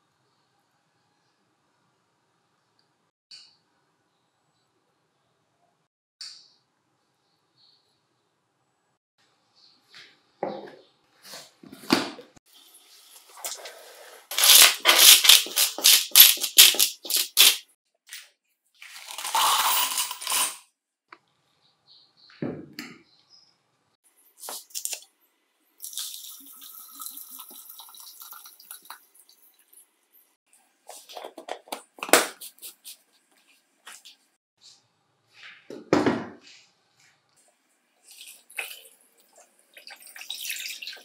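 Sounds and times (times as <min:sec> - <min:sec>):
parts sliding from plastic scoop: 0:18.8 - 0:20.6
small metal parts clattering: 0:18.8 - 0:20.6
liquid pouring into jar: 0:25.8 - 0:29.4.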